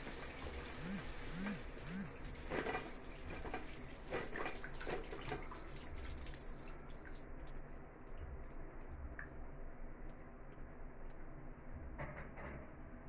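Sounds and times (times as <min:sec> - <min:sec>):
shower spray hissing: 0:00.0 - 0:03.2
water drips splashing: 0:00.0 - 0:07.7.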